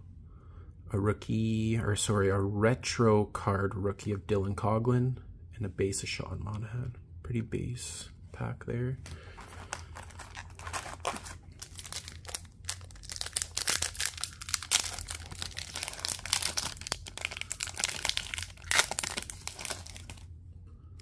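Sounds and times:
foil wrapper crinkling: 9.3s - 20.3s.

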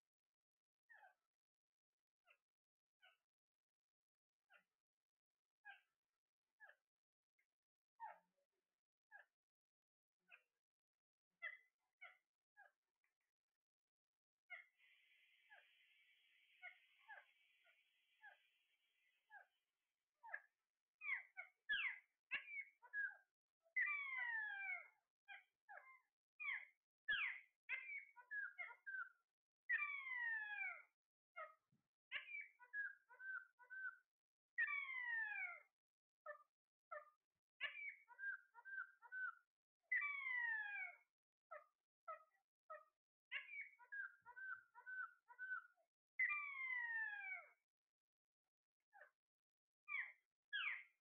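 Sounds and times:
parakeets calling: 14.6s - 18.5s, 37.6s - 39.2s, 43.3s - 45.6s, 49.9s - 50.8s.

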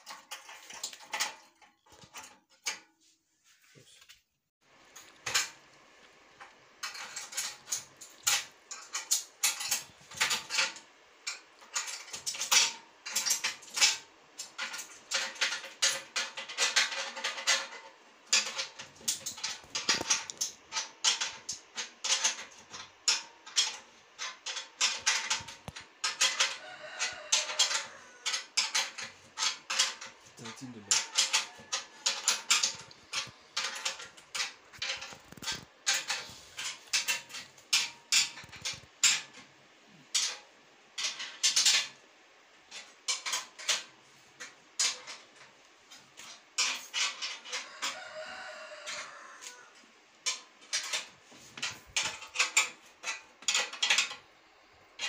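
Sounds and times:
spanner clicking and scraping on metal: 0.0s - 2.9s, 4.9s - 5.6s, 6.4s - 42.0s, 42.7s - 54.3s.

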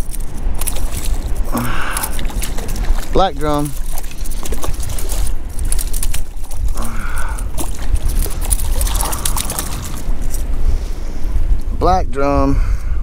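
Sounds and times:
wind buffeting microphone: 0.0s - 13.0s
fish splashing in water: 0.6s - 10.4s.

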